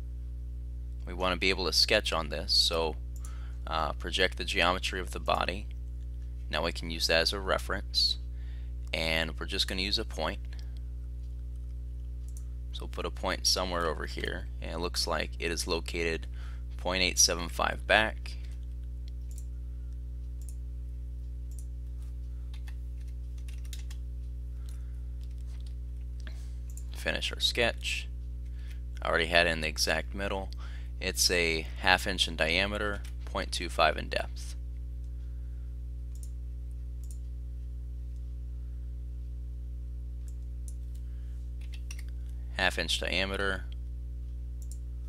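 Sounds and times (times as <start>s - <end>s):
low electrical hum: 0.0s - 45.0s
computer mouse clicks: 19.2s - 19.5s, 21.5s - 21.7s, 22.5s - 24.0s, 36.1s - 36.4s, 37.0s - 37.2s, 41.6s - 42.1s
keyboard keystrokes: 22.5s - 24.0s.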